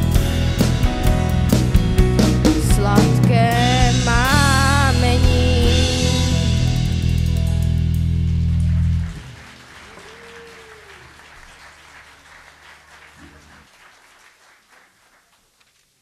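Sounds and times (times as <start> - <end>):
audience applause: 8.2 - 15.6.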